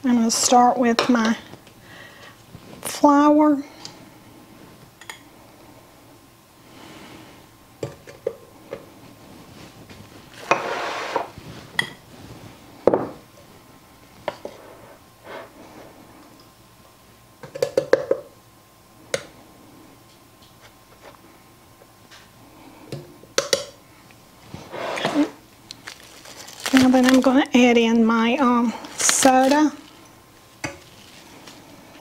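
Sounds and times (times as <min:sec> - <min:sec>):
soft rushing of flour: 0:28.7 - 0:32.0.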